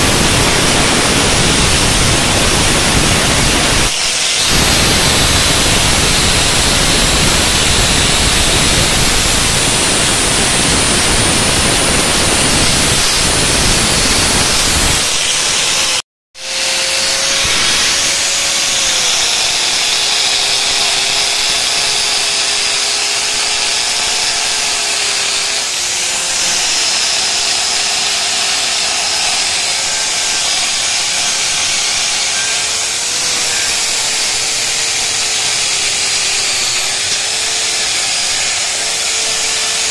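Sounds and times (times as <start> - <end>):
angle grinder grinding metal: 0.0 - 39.9.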